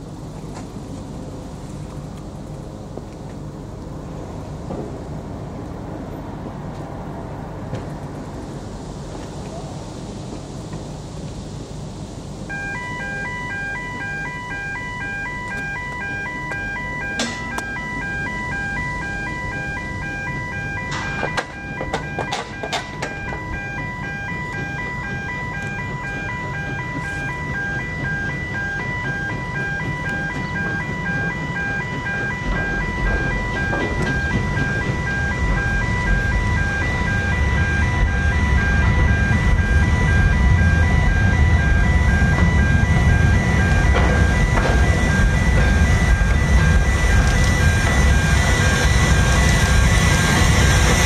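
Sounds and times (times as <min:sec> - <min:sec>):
two-tone warning alarm: 0:12.5 - 0:51.0
low rumble: 0:23.2 - 0:51.0.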